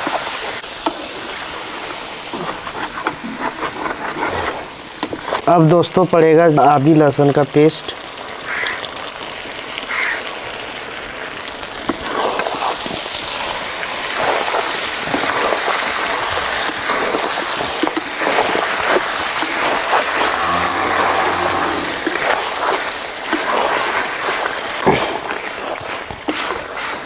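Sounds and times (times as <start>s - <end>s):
chicken sizzling in oil: 0.0s - 27.0s.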